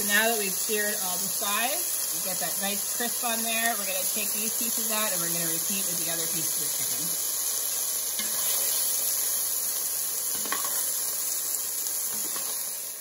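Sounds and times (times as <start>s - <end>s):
chicken sizzling in oil: 0.0s - 13.0s.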